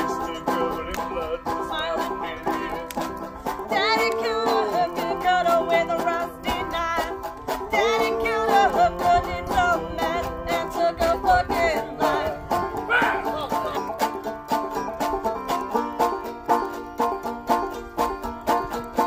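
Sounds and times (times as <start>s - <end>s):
person singing: 0.0s - 13.9s
banjo and mandolin picking: 0.0s - 19.0s.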